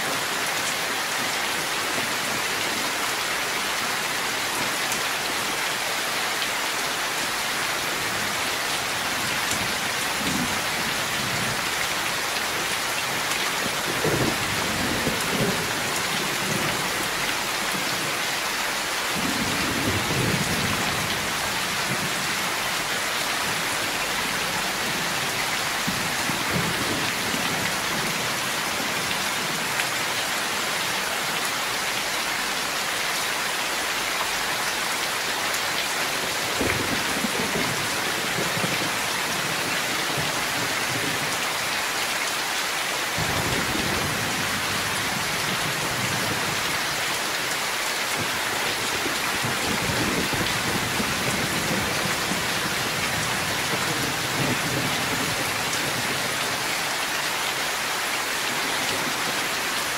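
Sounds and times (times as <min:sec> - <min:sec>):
heavy rain falling: 0:00.0 - 0:59.9.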